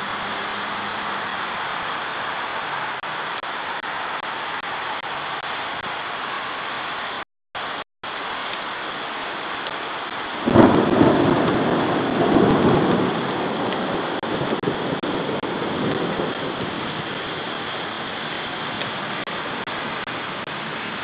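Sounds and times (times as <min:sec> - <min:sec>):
thunder crack and rumble: 0:10.1 - 0:21.0.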